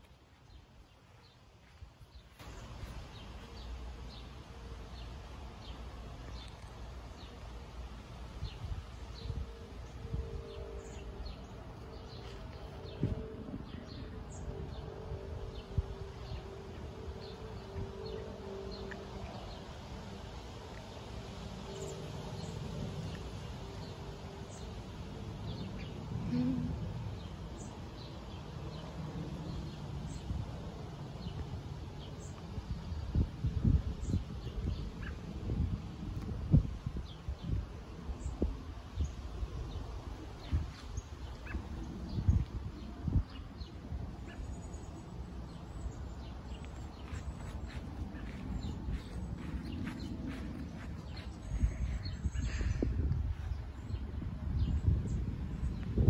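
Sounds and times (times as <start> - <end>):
steady low rumble: 0.0 - 56.0
low rumble: 39.7 - 56.0.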